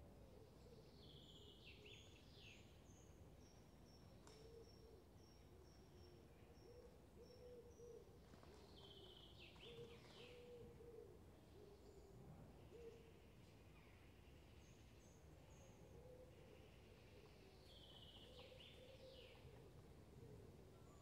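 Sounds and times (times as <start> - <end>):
low cooing calls: 6.6 - 13.2, 15.7 - 21.0.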